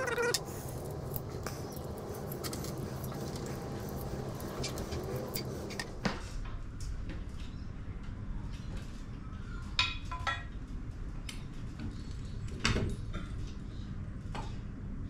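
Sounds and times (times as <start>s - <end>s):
steady low hum: 0.0s - 8.5s.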